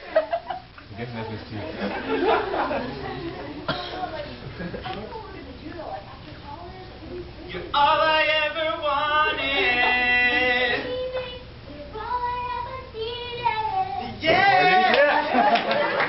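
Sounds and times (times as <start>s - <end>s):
girls singing: 8.7s - 15.2s.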